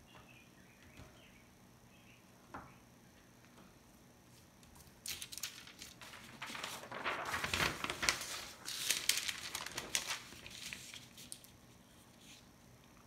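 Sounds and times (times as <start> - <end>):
paper rustling and crinkling: 4.6 - 12.5.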